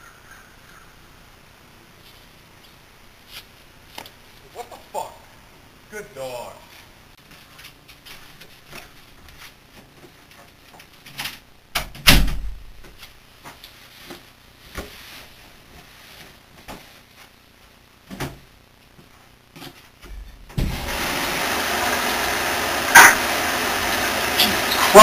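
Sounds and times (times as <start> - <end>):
thump: 11.8 - 12.6, 20.1 - 20.8.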